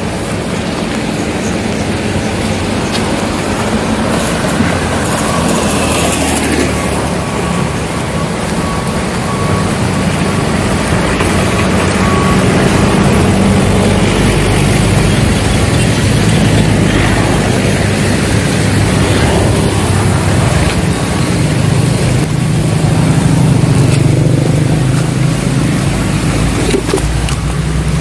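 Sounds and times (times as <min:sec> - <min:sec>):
stream rushing over stones: 0:00.0 - 0:28.0.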